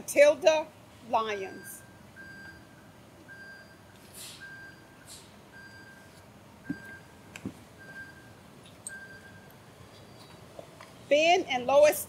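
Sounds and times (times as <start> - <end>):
reversing alarm beeping: 1.3 - 10.3.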